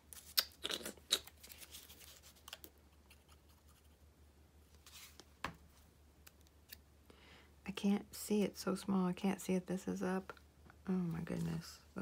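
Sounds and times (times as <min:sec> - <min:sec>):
light paper rustling: 0:01.3 - 0:03.9.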